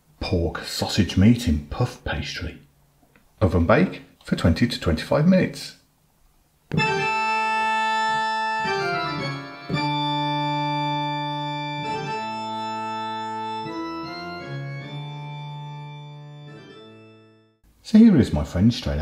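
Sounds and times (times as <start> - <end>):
organ-like keyboard chords: 6.7 - 17.6.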